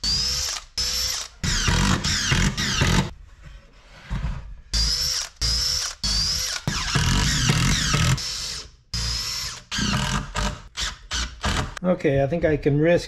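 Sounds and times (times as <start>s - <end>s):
cordless drill driving screws: 0.0s - 3.1s, 4.8s - 11.8s.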